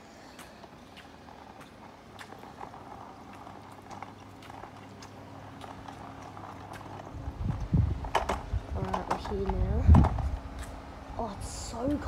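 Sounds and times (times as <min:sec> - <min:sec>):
footsteps on concrete: 0:00.0 - 0:10.9
steady low hum: 0:00.0 - 0:12.0.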